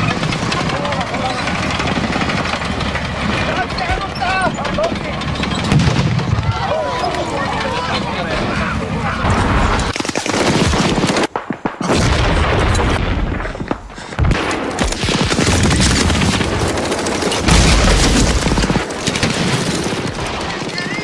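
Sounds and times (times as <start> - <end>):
heavy boom: 5.6 - 6.7
rifle and machine-gun fire: 9.2 - 21.0.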